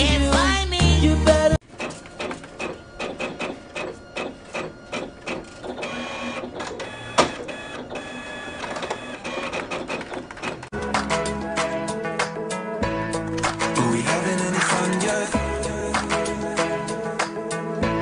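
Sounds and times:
photocopier whirring: 0:01.6 - 0:10.7.

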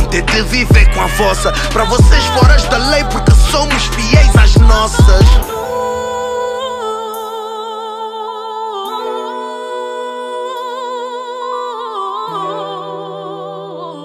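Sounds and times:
sustained low chords: 0:00.0 - 0:06.8
wordless vocal melody: 0:00.0 - 0:14.0.

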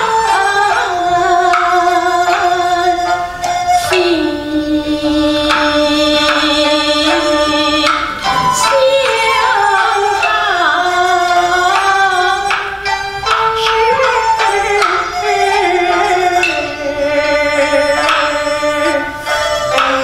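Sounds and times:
sharp percussive clicks: 0:05.2 - 0:20.0.

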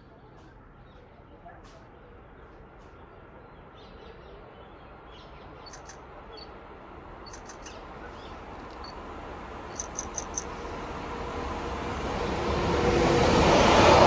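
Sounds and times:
steady background noise: 0:00.0 - 0:12.2
birds chirping: 0:02.9 - 0:06.6, 0:07.2 - 0:09.0, 0:09.7 - 0:10.6.

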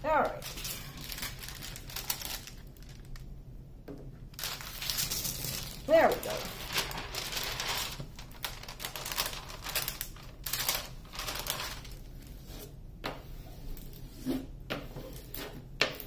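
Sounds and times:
plastic cover crinkling: 0:00.2 - 0:03.3, 0:04.3 - 0:12.4.

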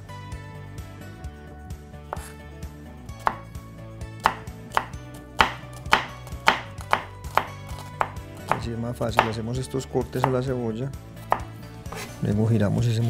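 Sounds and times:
knife chopping on cutting board: 0:02.1 - 0:02.4, 0:03.2 - 0:03.5, 0:04.2 - 0:09.5, 0:10.1 - 0:10.5, 0:11.3 - 0:12.2.

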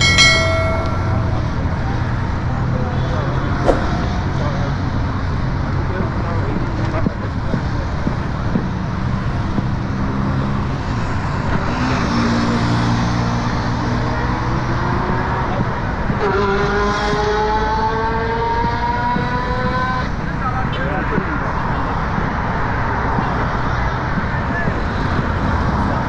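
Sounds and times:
road traffic: 0:00.0 - 0:05.8.

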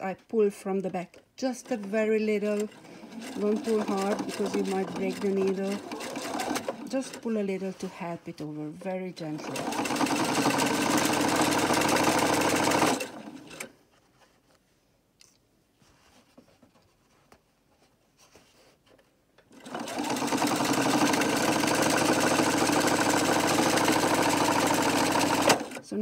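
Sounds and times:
electric sewing machine stitching: 0:01.4 - 0:13.7, 0:19.5 - 0:26.0
faint handling sounds: 0:13.7 - 0:19.5.

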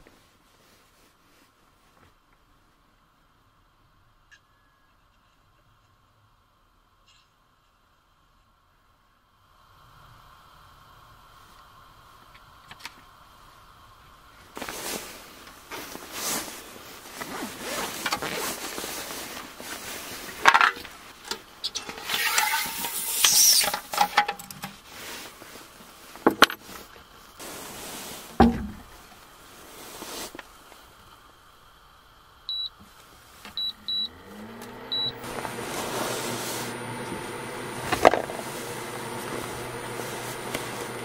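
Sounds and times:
rustling and clatter of handling: 0:14.6 - 0:30.8
heavy thud: 0:28.4 - 0:28.9
small motor humming: 0:33.5 - 0:41.0
short high beeps: 0:33.6 - 0:34.1, 0:34.9 - 0:35.1.

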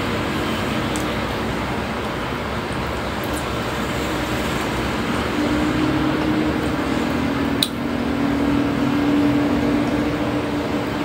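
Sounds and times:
cooling fan rushing: 0:00.0 - 0:11.0
sharp click: 0:07.6 - 0:07.8.

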